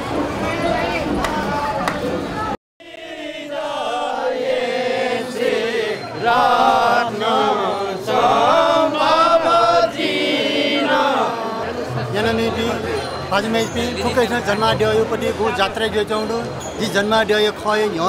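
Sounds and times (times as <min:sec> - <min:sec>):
men chanting a devotional song: 0:02.8 - 0:17.2.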